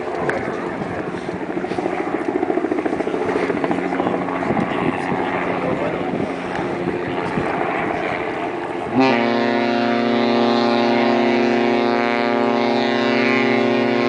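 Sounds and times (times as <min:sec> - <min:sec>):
wind noise on microphone: 0:00.0 - 0:14.0
deep ship's horn blast: 0:08.9 - 0:14.0.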